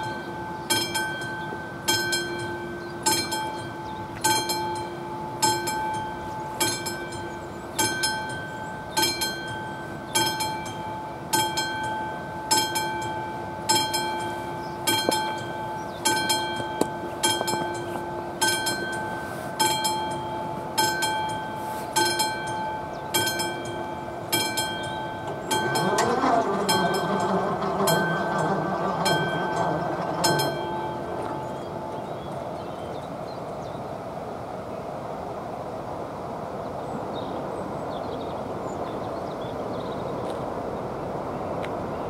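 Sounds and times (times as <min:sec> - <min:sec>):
level-crossing warning bell: 0:00.0 - 0:33.1
electric barrier motor hum: 0:23.7 - 0:32.6.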